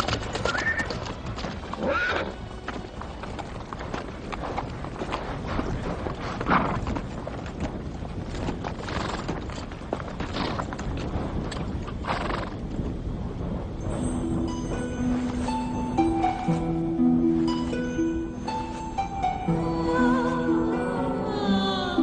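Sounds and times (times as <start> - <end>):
music: 0.0 - 4.8, 13.8 - 22.0
hooves clopping on hard dirt: 0.0 - 16.9
horses whinnying: 0.4 - 1.1, 1.8 - 2.4.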